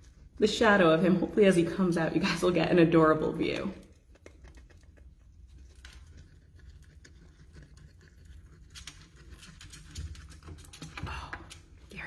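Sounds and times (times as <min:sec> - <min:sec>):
animal feet scratching in plastic tube: 0:03.7 - 0:11.6.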